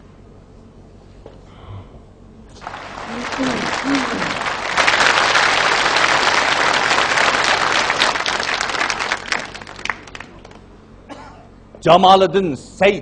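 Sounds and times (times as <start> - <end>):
audience applauding: 2.5 - 10.6.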